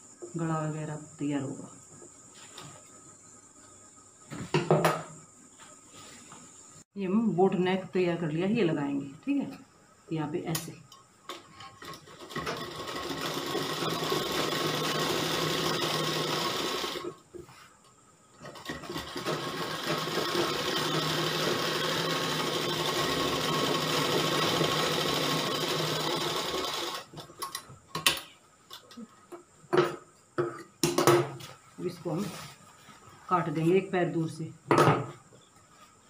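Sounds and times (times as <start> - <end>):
sewing machine stitching: 11.8 - 17.1, 18.4 - 27.1.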